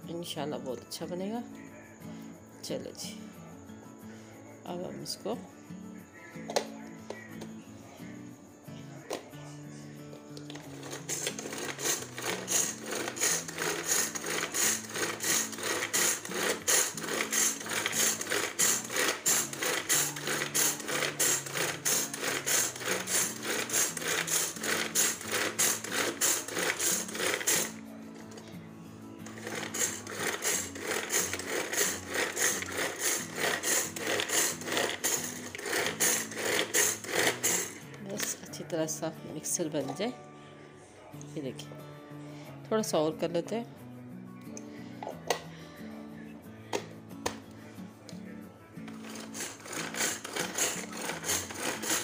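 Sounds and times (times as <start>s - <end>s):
background music: 0.0s - 52.0s
string food chopper cord pulling: 10.5s - 28.4s, 29.2s - 38.4s, 48.9s - 52.0s
blades whirring in plastic bowl: 10.8s - 27.8s, 29.2s - 38.2s, 49.0s - 52.0s.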